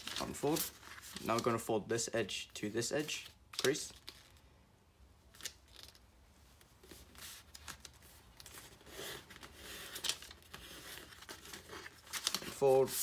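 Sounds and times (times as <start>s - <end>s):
paper rustling and scraping: 0.0s - 1.6s, 6.8s - 13.0s.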